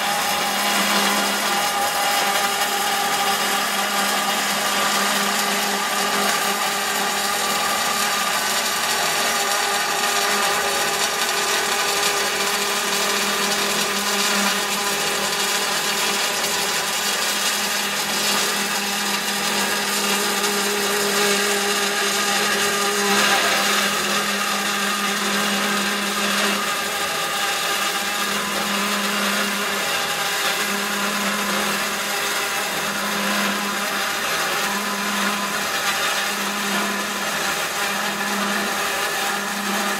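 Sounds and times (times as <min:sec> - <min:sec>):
band saw cutting metal: 0:00.0 - 0:39.9.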